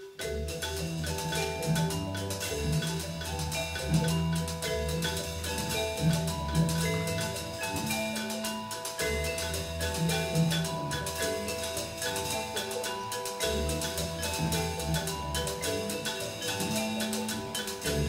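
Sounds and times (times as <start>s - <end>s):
melody instruments playing: 0.0s - 18.0s
percussion: 0.0s - 18.0s
bass line: 0.3s - 8.2s.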